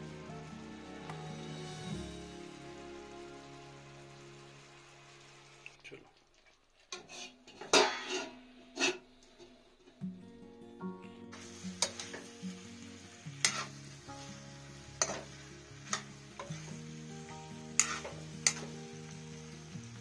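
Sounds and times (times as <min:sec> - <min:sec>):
background music: 0:00.0 - 0:05.7, 0:10.0 - 0:20.0
vegetables sizzling: 0:00.0 - 0:20.0.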